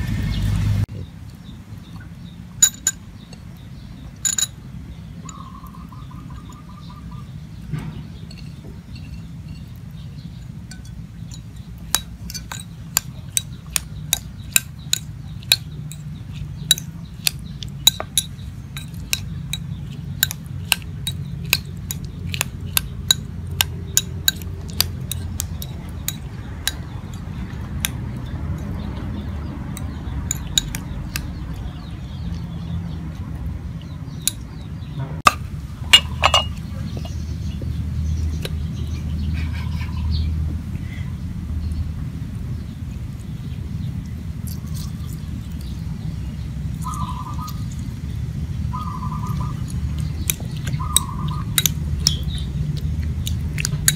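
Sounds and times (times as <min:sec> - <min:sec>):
spoon clinking ceramic bowl: 0:02.6 - 0:03.5, 0:04.2 - 0:04.6, 0:08.2 - 0:09.8, 0:10.4 - 0:22.4, 0:35.3 - 0:37.2.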